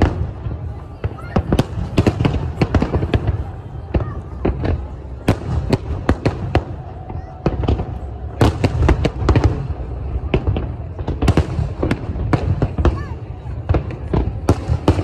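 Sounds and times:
fireworks bangs: 0.0s - 15.0s.

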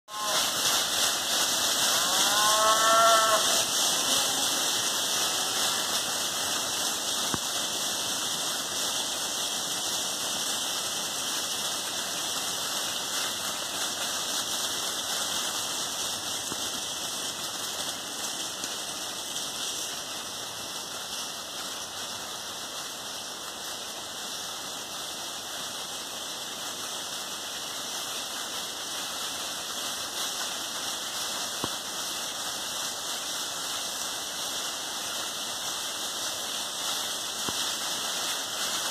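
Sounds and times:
cow mooing: 0.1s - 0.5s, 1.9s - 4.5s
hooves rustling dry leaves: 0.1s - 38.9s.

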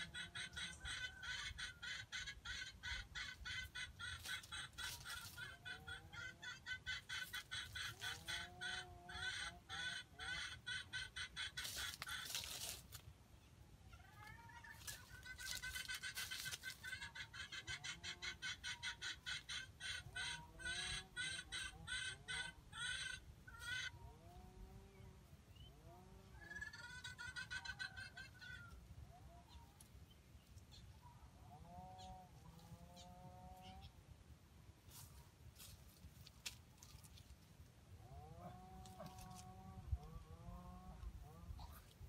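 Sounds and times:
rustling: 11.6s - 13.1s, 14.1s - 16.8s, 34.8s - 37.7s.

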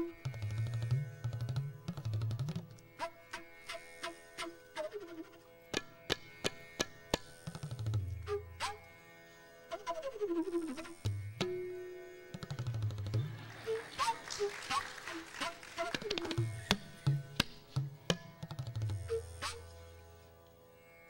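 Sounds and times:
tabla playing: 0.0s - 2.9s, 5.7s - 8.8s, 10.1s - 19.7s
tanpura drone: 0.0s - 21.0s.

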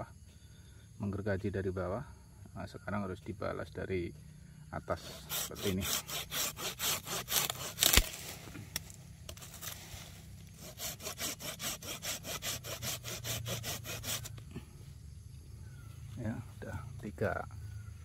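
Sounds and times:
hand saw cutting branch: 5.0s - 14.4s
branch cracking: 7.1s - 10.6s.

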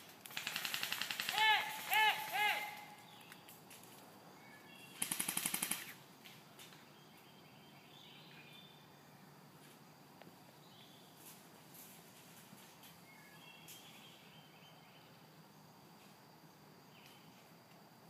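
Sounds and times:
airsoft gun rapid fire: 0.2s - 1.9s, 5.0s - 6.0s
faint bird chirps: 4.3s - 5.0s, 6.8s - 9.3s, 12.8s - 15.3s.

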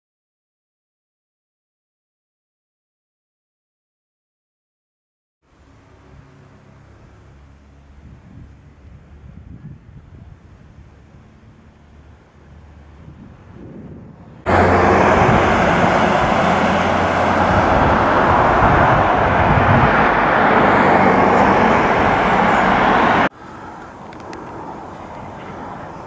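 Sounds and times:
road traffic noise: 5.5s - 26.0s.

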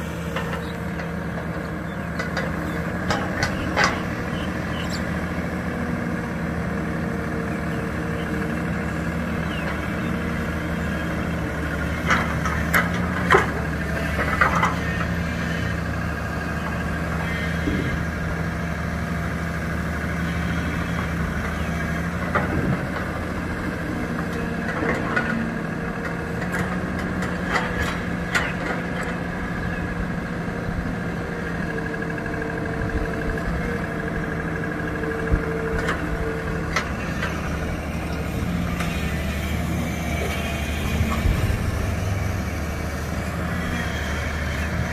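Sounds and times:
excavator diesel engine running: 0.0s - 44.9s.

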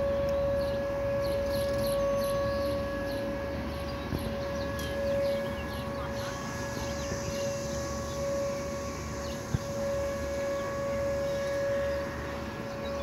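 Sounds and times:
warning siren steady tone: 0.0s - 13.0s.

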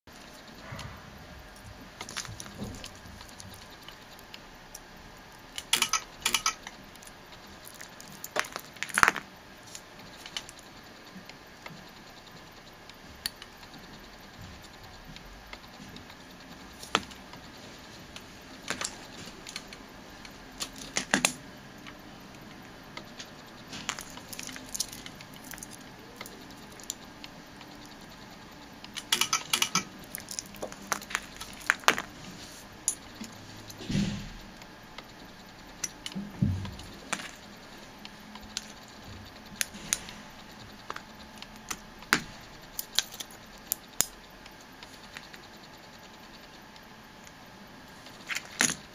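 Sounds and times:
spot welder clicks and snaps: 5.6s - 6.8s.

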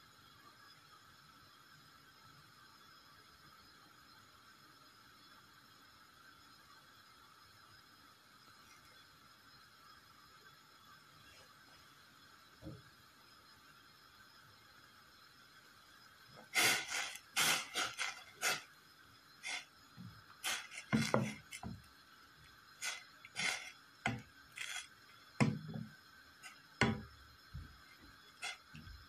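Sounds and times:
wooden spoon scraping metal pot: 16.6s - 18.6s, 19.4s - 19.6s, 20.4s - 21.8s, 22.8s - 27.1s, 28.4s - 28.8s.

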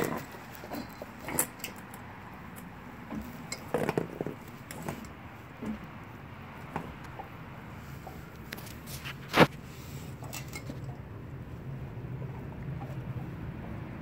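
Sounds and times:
dog gnawing frozen bone: 0.0s - 5.2s.

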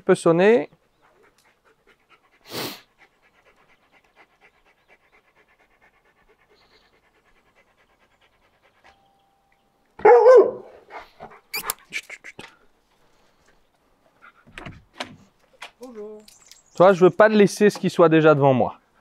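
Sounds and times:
dog panting: 0.7s - 9.1s, 10.7s - 12.6s.

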